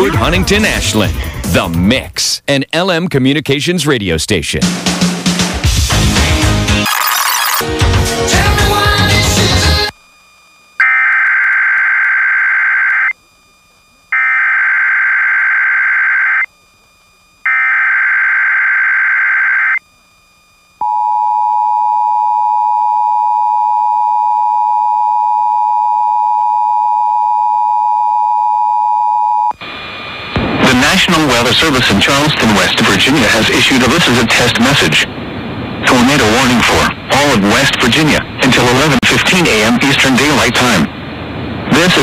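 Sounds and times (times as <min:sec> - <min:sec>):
two-tone attention signal: 0:06.8 - 0:07.7
data header bursts: 0:06.8 - 0:09.9.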